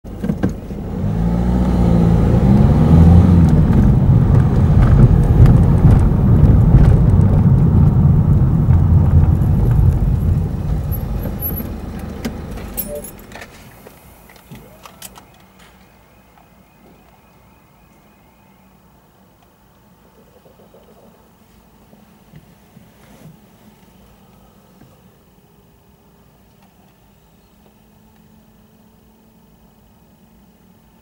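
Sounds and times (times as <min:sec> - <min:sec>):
car engine and road noise: 0:00.0 - 0:17.8.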